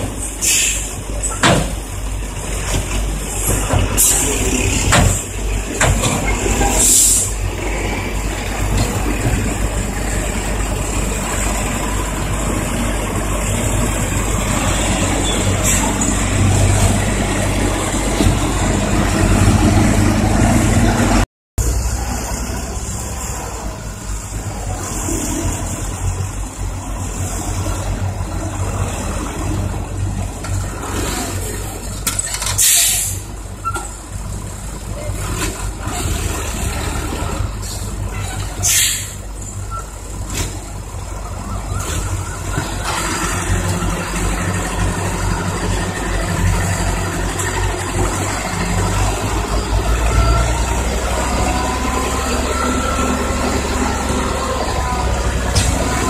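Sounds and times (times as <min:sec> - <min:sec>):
diesel truck engines running: 0:00.0 - 0:56.0
air hiss: 0:00.4 - 0:01.0.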